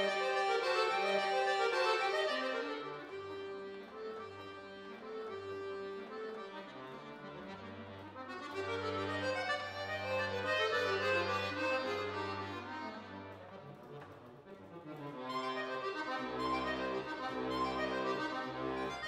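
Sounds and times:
button accordion playing classical music: 0.0s - 19.0s.

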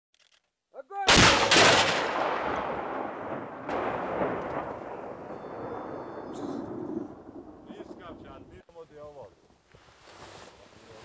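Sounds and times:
artillery gun firing: 1.1s - 6.3s
rolling echo: 1.1s - 8.6s.

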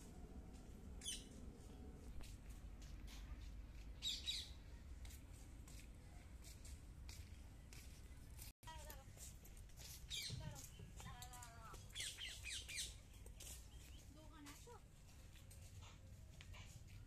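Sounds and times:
birds calling: 1.0s - 1.4s, 4.0s - 4.6s, 10.1s - 14.1s.

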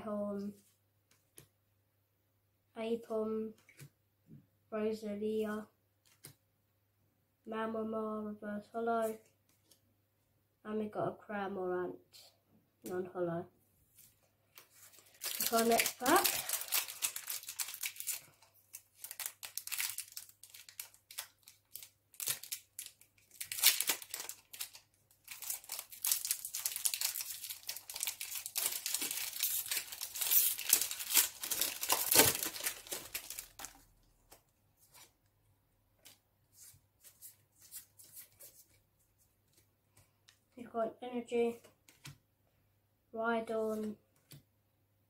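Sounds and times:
foil wrapper tearing and crinkling: 14.9s - 33.8s.

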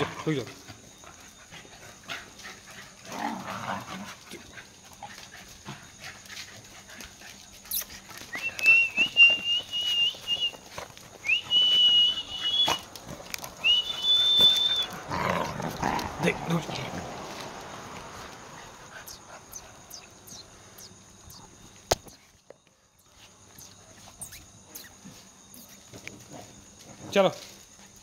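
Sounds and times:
dog whining: 13.6s - 16.0s, 19.0s - 22.2s.

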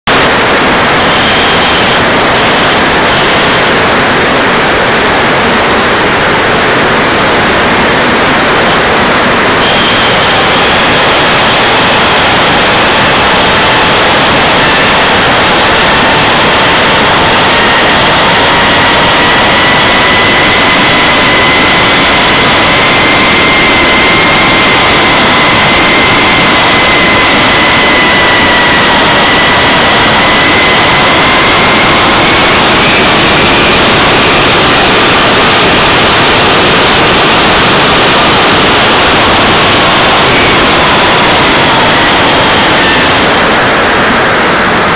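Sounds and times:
model jet engine whine and airflow: 0.0s - 44.9s.

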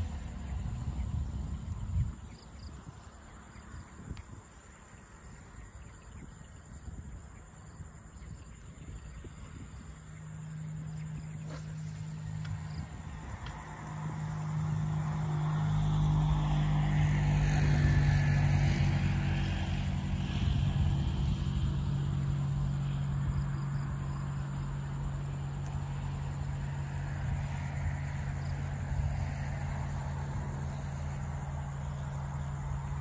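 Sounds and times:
motor engine humming: 10.4s - 15.0s.

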